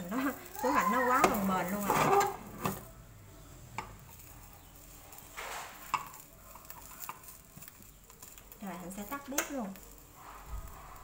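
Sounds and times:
spatula scraping pan: 0.0 - 2.8
metal spoon tapping frying pan: 5.8 - 9.8.

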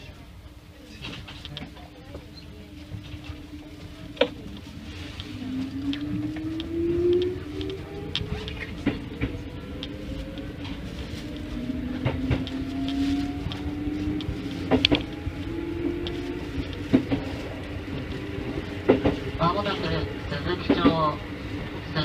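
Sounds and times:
train running rumble: 0.0 - 22.0
train traction motors whining: 1.4 - 22.0
wheels clacking over rail joints: 6.0 - 21.8.

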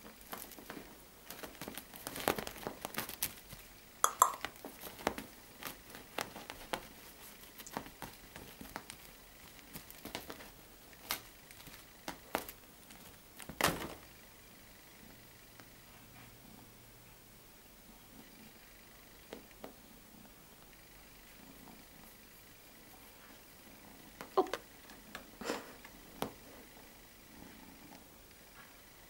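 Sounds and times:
kitten batting toy soft clicks: 4.1 - 4.6.

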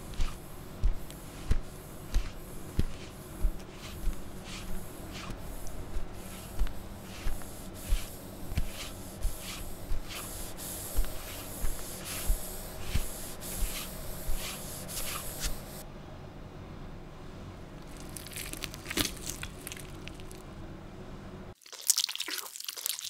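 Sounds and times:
thighs chafing with rubbing swishes: 0.0 - 15.7.

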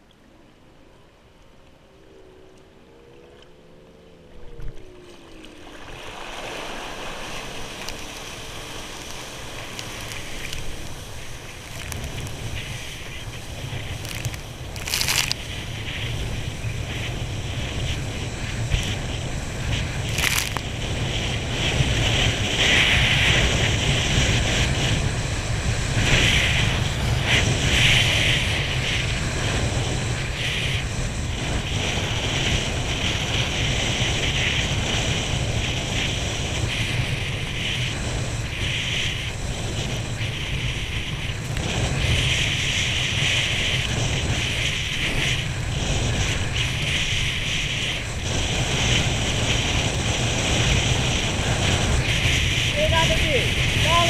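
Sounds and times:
wind buffeting microphone: 4.3 - 54.0
water spray rushing: 6.0 - 16.4.

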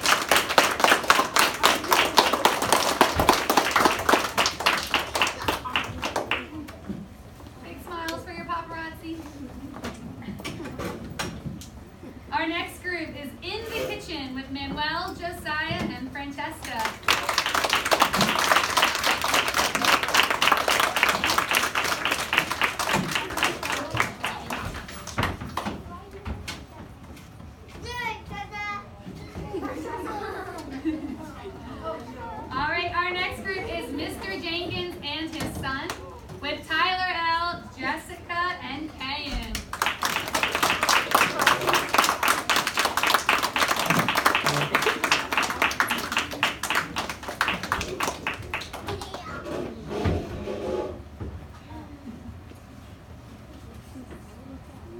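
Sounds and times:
children clapping: 0.0 - 6.8, 16.6 - 25.8, 39.5 - 49.4
children's voices: 48.7 - 49.9.

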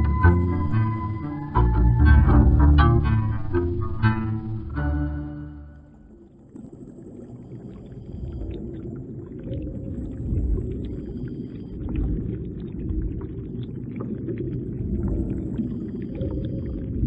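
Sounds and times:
underwater bubbles rumbling: 5.7 - 17.0.

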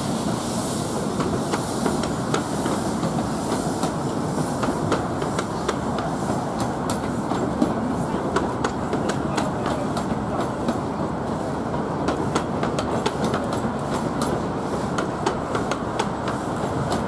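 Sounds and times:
train coaches rumbling: 0.0 - 17.0.

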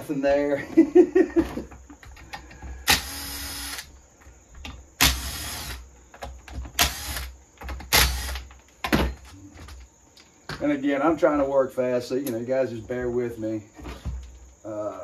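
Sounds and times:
handheld power tool bursts: 2.8 - 3.9, 5.0 - 5.8, 6.8 - 8.5.

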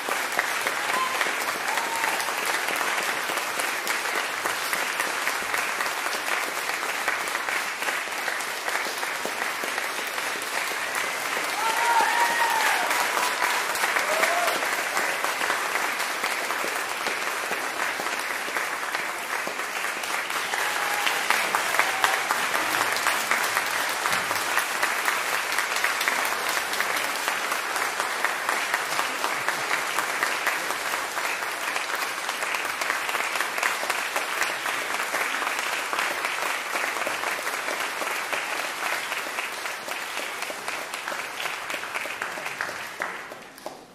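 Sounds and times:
audience applauding: 0.0 - 43.9
shouts from audience: 0.7 - 2.4, 11.5 - 14.8, 20.4 - 22.7.

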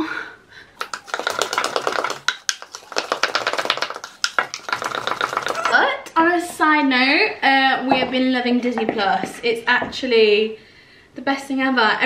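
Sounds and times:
wooden spoon clacking in bowl: 0.8 - 5.8.

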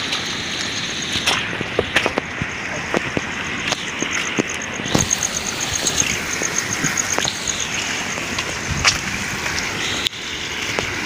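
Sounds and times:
footsteps splashing on wet path: 0.0 - 11.0
steady rain: 0.0 - 11.0
high repeating chirp: 3.9 - 7.9.

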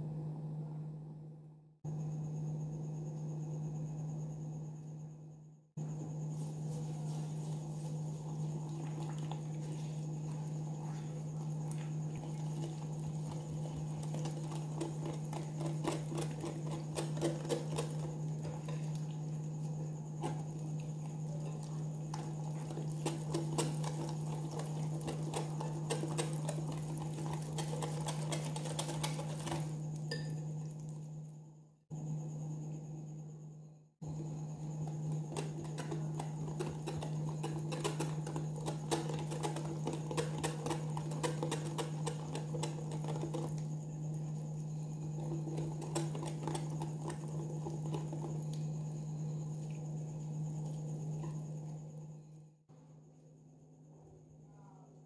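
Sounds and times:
steady low hum: 0.0 - 55.0
utensil scraping glass bowl: 20.1 - 30.4.

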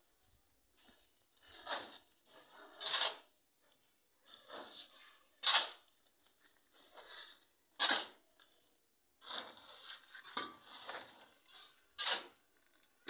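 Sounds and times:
trowel scraping mortar: 1.4 - 12.8.

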